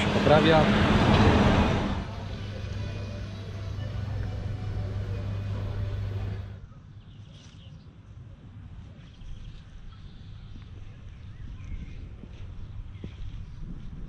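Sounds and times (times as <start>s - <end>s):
low engine hum: 0.0s - 6.6s.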